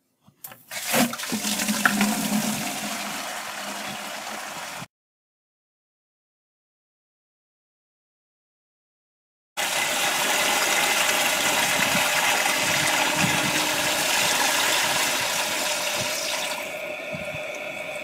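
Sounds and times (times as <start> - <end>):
hose water filling bucket: 0.7 - 4.9, 9.6 - 18.0.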